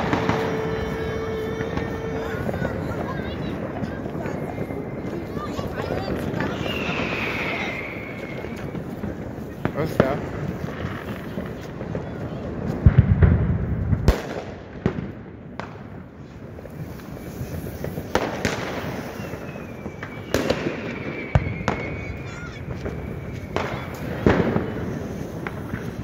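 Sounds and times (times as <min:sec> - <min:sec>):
fireworks and firecrackers banging: 0:00.0 - 0:26.0
faint falling whistle: 0:06.5 - 0:08.7, 0:19.0 - 0:24.0.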